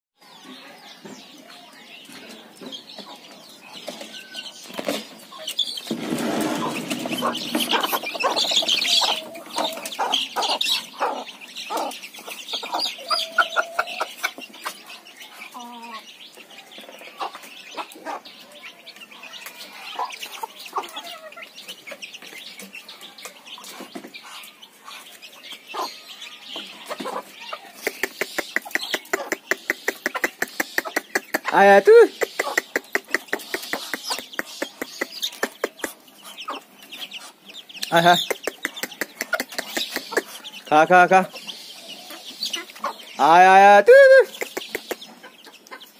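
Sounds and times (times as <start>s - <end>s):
chickens clucking: 0.2s - 45.9s
quick ticks: 37.8s - 40.3s.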